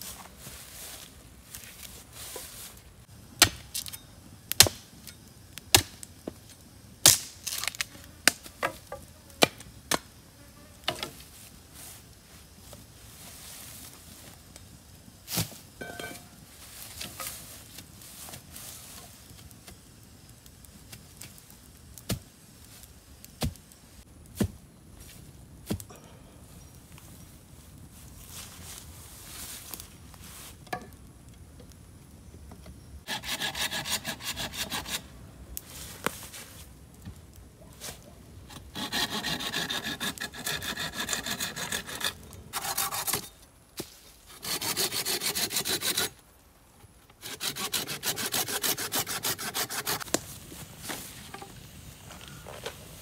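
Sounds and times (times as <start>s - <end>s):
machete chopping wooden sticks: 3.4s - 4.8s, 5.7s - 6.0s.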